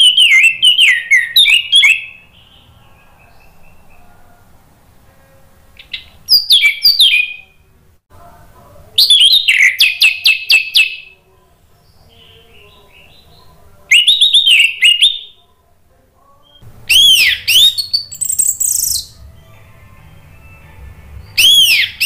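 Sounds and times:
thrush singing whistled phrases: 0.0 - 4.0, 5.8 - 7.6, 9.0 - 11.2, 11.8 - 15.4, 16.4 - 22.0
soft bird twittering: 16.4 - 19.2, 21.2 - 22.0.

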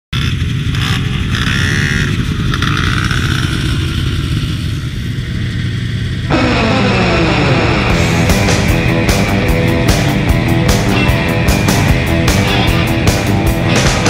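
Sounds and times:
engines revving: 0.1 - 14.0
snowmobile engine running: 0.1 - 14.0
music: 6.3 - 14.0.

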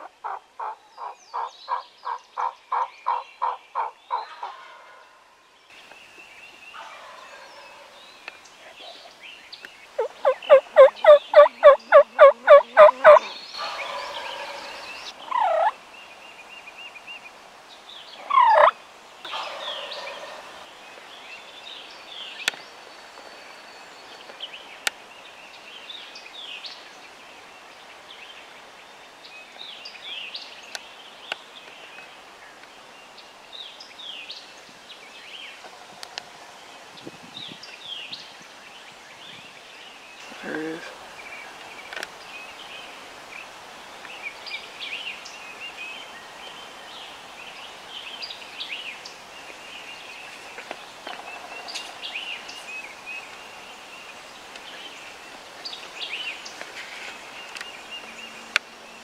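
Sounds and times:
turkey yelping: 10.0 - 15.8, 18.3 - 18.7.

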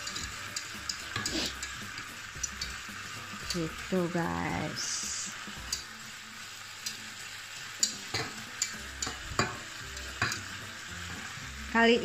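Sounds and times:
utensil clicking against pan: 0.0 - 4.0, 5.5 - 5.9, 6.8 - 7.0, 7.7 - 11.3
steak sizzling in a pan: 0.0 - 12.0.

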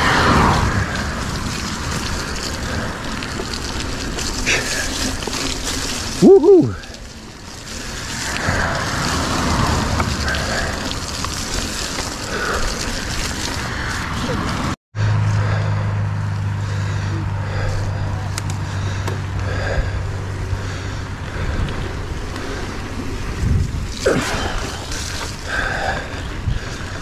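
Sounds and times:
bike tyre and wind noise: 0.0 - 27.0
rider shouting: 6.1 - 7.0.

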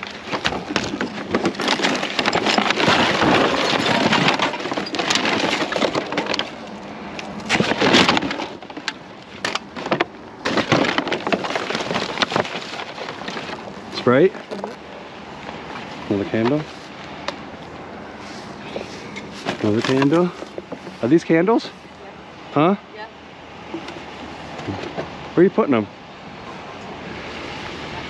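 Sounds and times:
plastic wrap and cardboard crinkling: 0.0 - 14.8.

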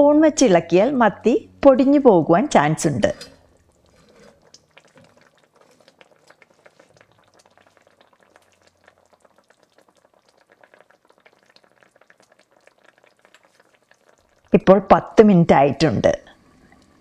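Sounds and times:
curry bubbling in a pot: 2.5 - 15.3.

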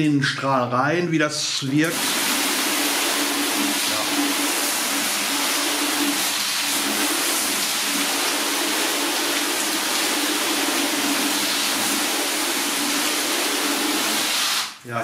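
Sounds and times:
hose spraying water on car: 1.8 - 14.8.

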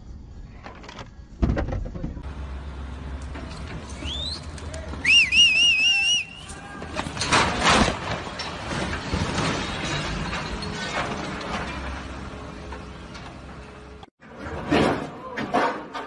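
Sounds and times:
heavy machinery rumble: 0.9 - 16.0
short rising whistle: 4.0 - 6.4
loud warbling whistle: 4.0 - 6.5.

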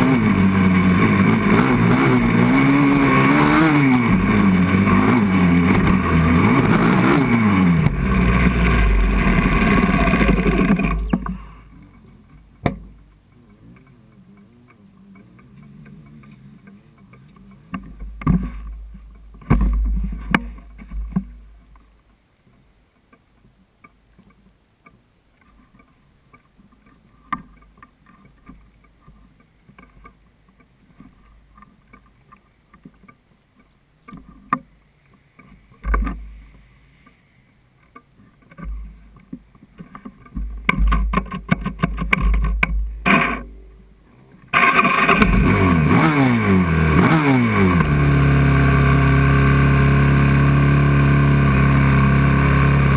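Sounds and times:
quad engine starting: 0.0 - 12.1, 40.9 - 43.8, 44.4 - 52.9
knocks and rattling of machine: 19.4 - 21.3.

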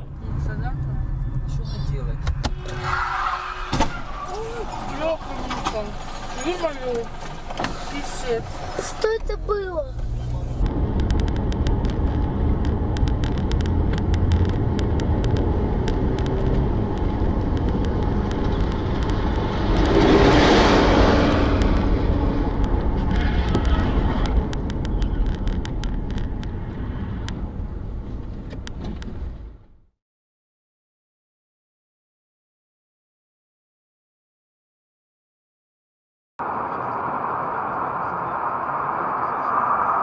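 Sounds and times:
car road and engine rumble: 0.0 - 29.9, 36.4 - 40.0
rushing sound: 36.4 - 40.0.

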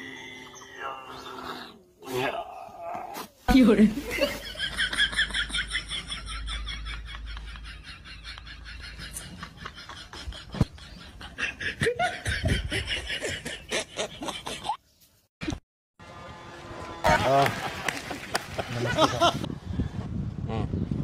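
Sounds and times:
person laughing: 4.1 - 14.8, 18.7 - 19.5.

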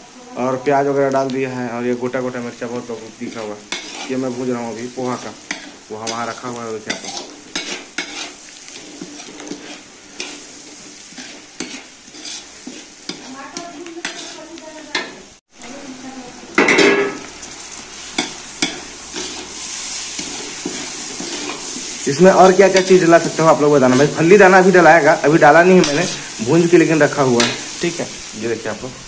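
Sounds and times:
frying sizzle: 0.0 - 29.0
metal spatula scraping pan: 3.2 - 15.2, 18.2 - 27.8.

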